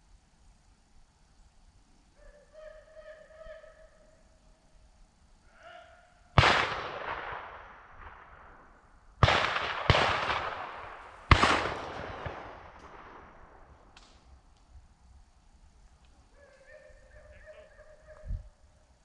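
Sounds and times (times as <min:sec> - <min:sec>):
shotgun shots with rolling echo: 0:06.4 - 0:14.3.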